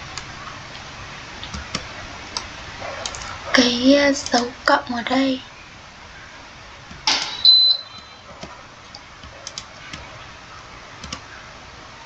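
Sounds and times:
mouse and keyboard clicks: 11.0s - 11.2s.

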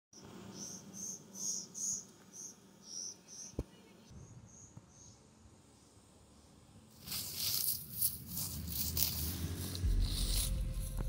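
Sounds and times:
cricket chirping: 0.2s - 6.6s.

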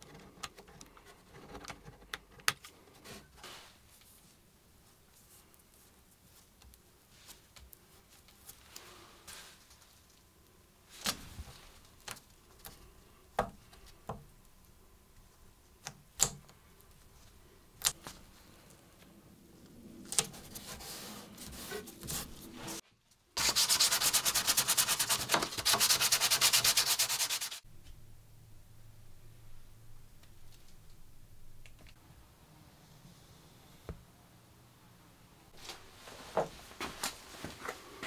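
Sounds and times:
sandpaper rubbing wood: 23.4s - 27.6s.

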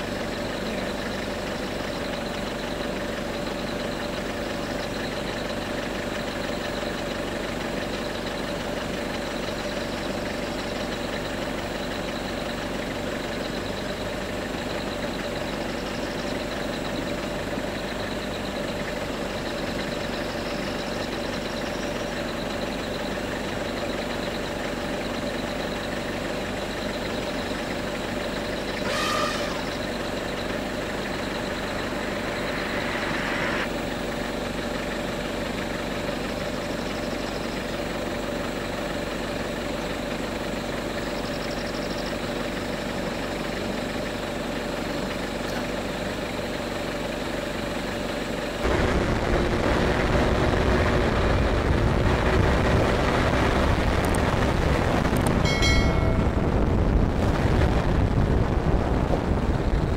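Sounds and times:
vehicle engine idling: 0.0s - 59.9s.

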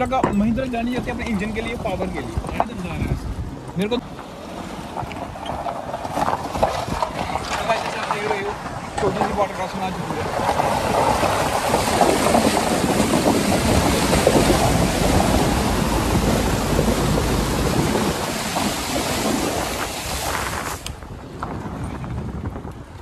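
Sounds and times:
tyre splashing through water: 5.8s - 21.0s.

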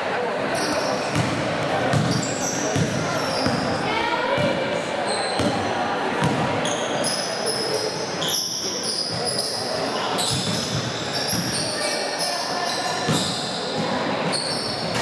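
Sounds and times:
sneaker squeaks: 0.5s - 15.0s
basketball bouncing on gym floor: 1.1s - 3.7s, 4.3s - 4.6s, 6.2s - 6.5s, 10.3s - 11.6s.

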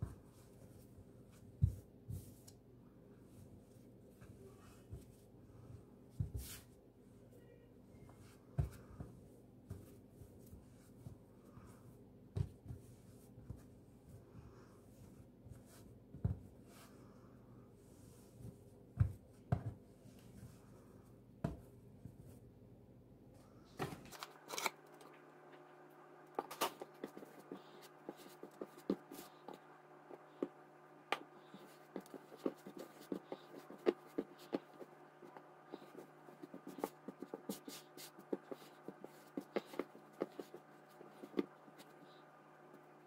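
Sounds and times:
hands kneading dough: 0.0s - 7.2s, 7.9s - 17.1s, 26.2s - 43.0s
steady low hum: 0.0s - 43.0s.

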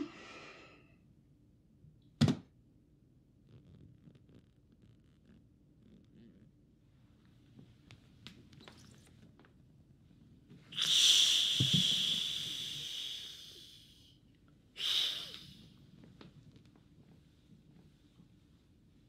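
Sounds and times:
person hissing through teeth: 10.7s - 14.1s, 14.8s - 15.7s.

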